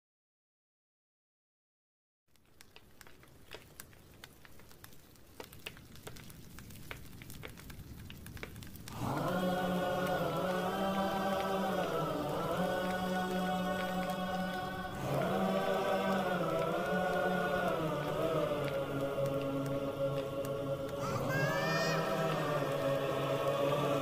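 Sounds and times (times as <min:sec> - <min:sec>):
fire crackling: 0:02.3 - 0:24.0
chorus of voices chanting: 0:08.9 - 0:24.0.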